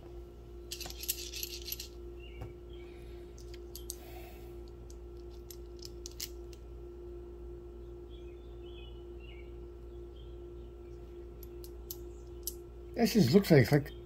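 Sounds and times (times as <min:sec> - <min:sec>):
metal cartridges clinking: 0:00.7 - 0:02.0, 0:03.4 - 0:04.0, 0:04.9 - 0:06.6.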